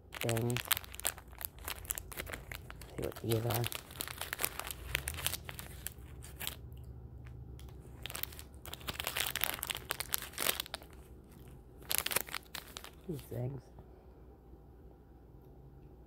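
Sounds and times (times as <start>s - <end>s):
plastic wrapper crinkling: 0.0s - 6.7s, 7.6s - 13.3s.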